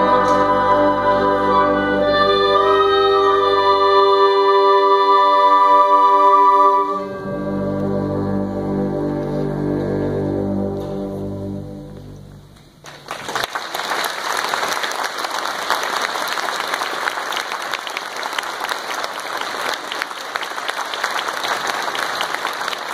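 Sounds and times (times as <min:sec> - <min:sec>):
concert band chord: 0:00.0 - 0:12.6
audience applauding: 0:12.8 - 0:22.9.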